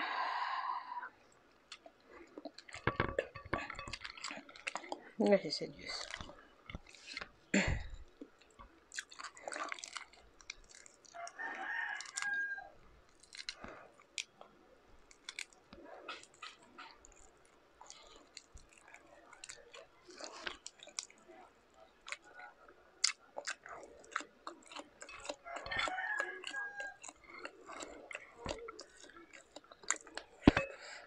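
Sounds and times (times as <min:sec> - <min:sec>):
chewing: 0:01.2 - 0:05.2, 0:05.8 - 0:31.0
shrimp shell crackling: 0:08.0 - 0:14.4, 0:21.9 - 0:30.6.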